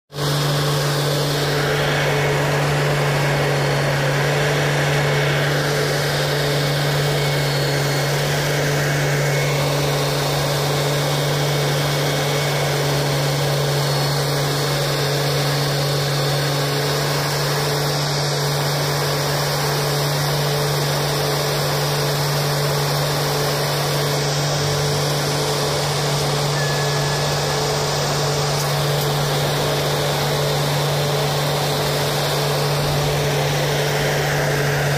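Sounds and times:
diesel engine running: 0.1 - 34.9.

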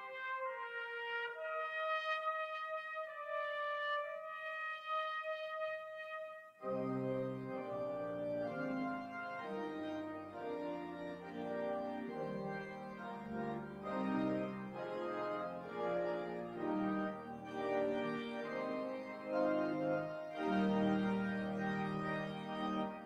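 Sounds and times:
church organ playing held chords: 6.6 - 23.0.

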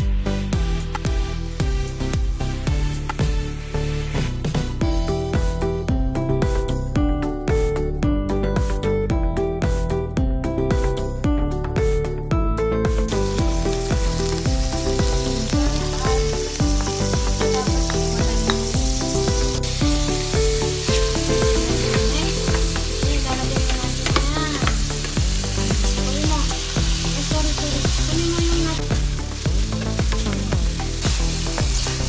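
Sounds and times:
background music: 0.0 - 32.0
meat sizzling in a pan: 13.0 - 32.0.

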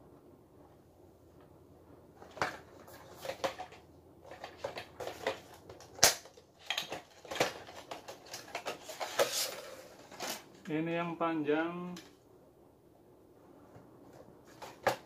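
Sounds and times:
plastic wrapping rustling: 2.7 - 10.7.

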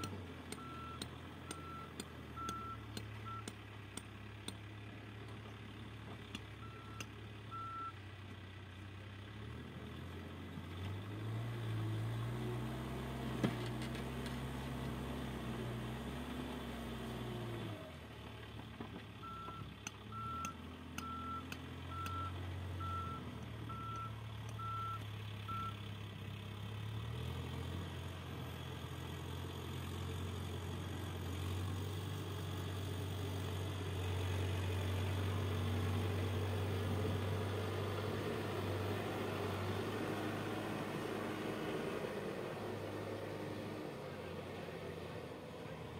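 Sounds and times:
diesel engine running: 0.0 - 45.9
reversing alarm beeping: 0.5 - 3.6, 6.6 - 8.0, 19.2 - 25.8.

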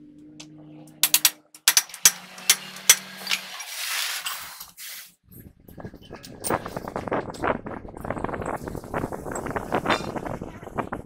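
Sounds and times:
metal parts clicking and clinking: 1.0 - 4.7.

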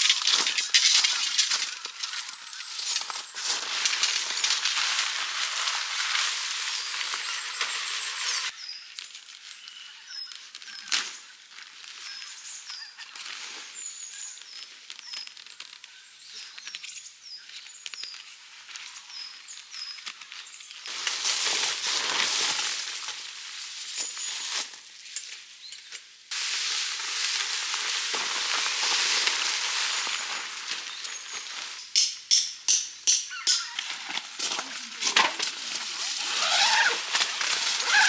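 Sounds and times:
tent fabric rustling: 0.0 - 8.5, 20.9 - 25.0, 26.3 - 31.8, 33.9 - 38.0
small birds chirping: 0.0 - 20.9, 29.8 - 35.0.

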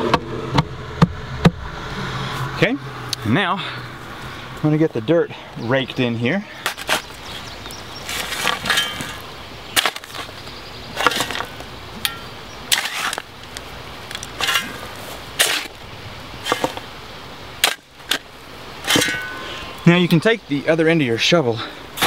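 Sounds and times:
shovel scooping dirt: 6.4 - 19.8.

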